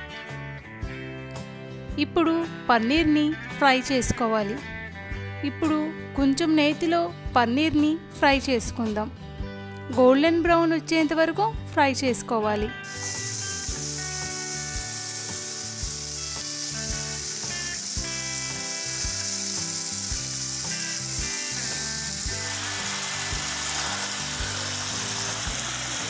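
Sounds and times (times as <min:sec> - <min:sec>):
instrumental background music: 0:00.0 - 0:26.0
cheese cubes sizzling in ghee: 0:12.8 - 0:26.0.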